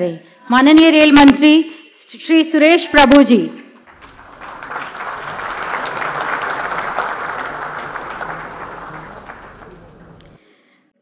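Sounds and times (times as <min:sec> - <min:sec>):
audience applauding: 0:03.9 - 0:10.4.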